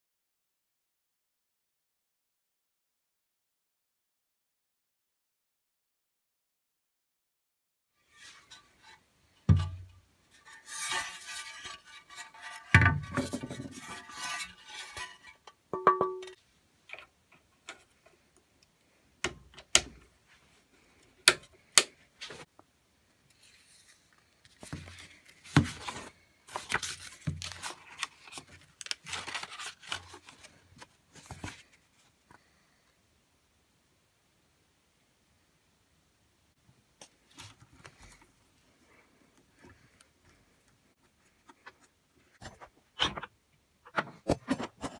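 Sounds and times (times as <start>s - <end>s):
knocks and metallic clinks: 15.8s - 16.4s
paper rustling: 23.4s - 32.1s.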